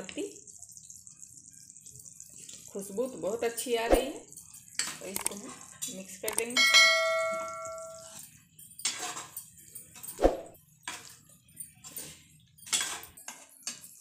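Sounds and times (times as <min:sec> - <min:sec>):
metal spoon stirring in a pan: 0:00.4 - 0:14.0
spoon scraping and knocking pan: 0:04.0 - 0:14.0
bell chime: 0:06.6 - 0:08.1.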